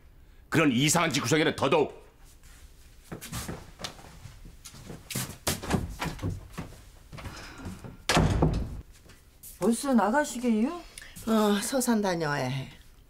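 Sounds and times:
irregular footsteps: 0:02.2 - 0:09.6
door slamming shut: 0:08.0 - 0:08.8.

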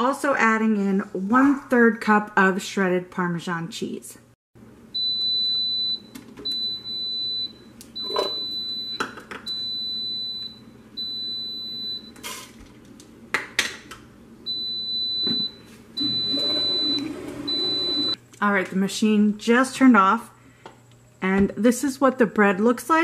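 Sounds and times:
high steady beep: 0:14.5 - 0:18.2.

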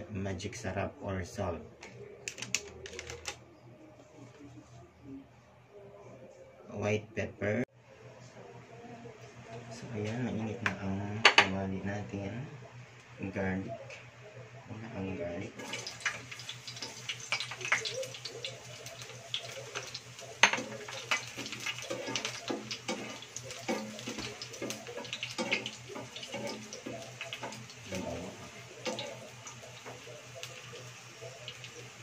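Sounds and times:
garlic sizzling in hot oil: 0:15.6 - 0:32.0
spatula scraping and tapping pan: 0:19.7 - 0:27.7.

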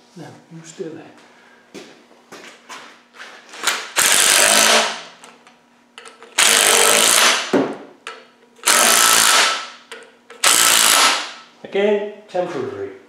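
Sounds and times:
impact driver hammering bolts: 0:03.8 - 0:05.0, 0:06.0 - 0:11.4.

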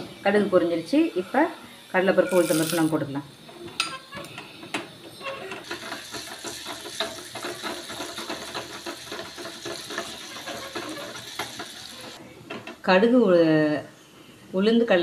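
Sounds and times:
seeds sizzling and popping in oil: 0:05.6 - 0:12.2
wooden spoon stirring in pan: 0:05.6 - 0:12.2.

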